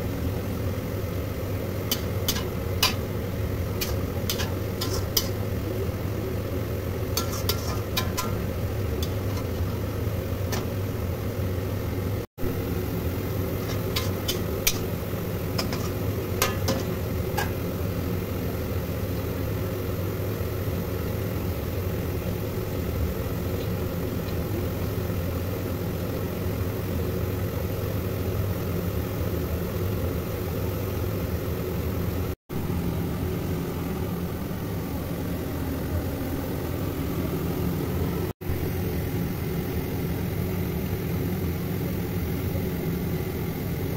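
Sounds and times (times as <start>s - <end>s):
low machine hum: 0.0s - 43.9s
spatula scraping metal pan: 1.9s - 3.1s, 3.8s - 5.4s, 7.2s - 9.7s, 13.6s - 17.6s.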